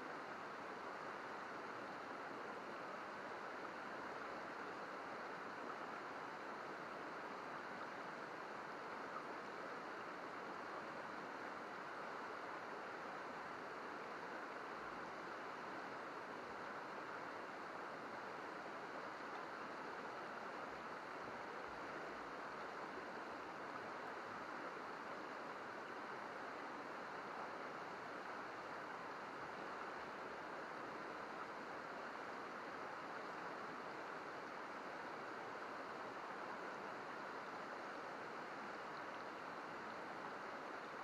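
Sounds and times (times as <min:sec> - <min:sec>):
river water babbling over rocks: 0:00.0 - 0:41.0.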